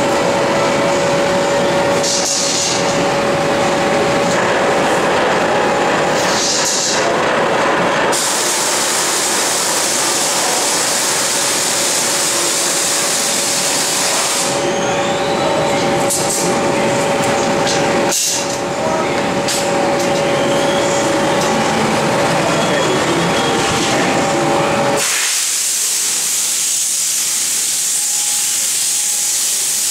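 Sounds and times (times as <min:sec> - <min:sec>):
workshop machinery hum: 0:00.0 - 0:29.9
loud hiss: 0:08.1 - 0:14.7, 0:25.0 - 0:29.9.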